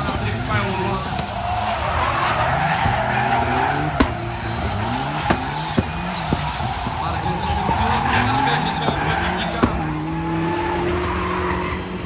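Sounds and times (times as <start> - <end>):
car engine revving: 0.0 - 12.0
tyres squealing: 0.3 - 11.7
sharp cracks: 3.9 - 10.1.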